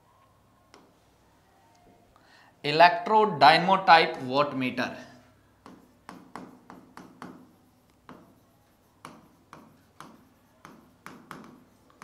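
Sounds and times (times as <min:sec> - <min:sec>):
pen tapping on touchscreen: 0:05.6 - 0:08.4, 0:09.0 - 0:12.0.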